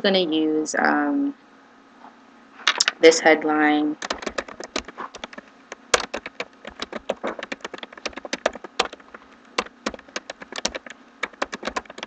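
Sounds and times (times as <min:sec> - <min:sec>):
keyboard typing: 0:04.0 - 0:12.0.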